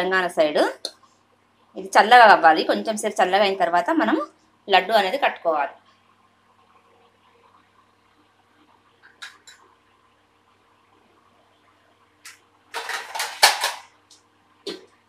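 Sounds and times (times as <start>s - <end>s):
metal lid rattling against pot: 12.8s - 13.8s.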